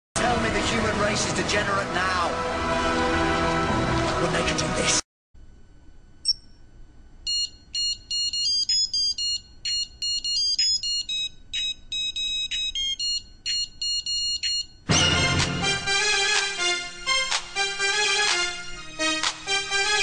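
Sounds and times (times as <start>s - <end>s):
digital wristwatch beeping: 7.3s - 14.8s
quick multi-tone beeps: 7.3s - 14.8s.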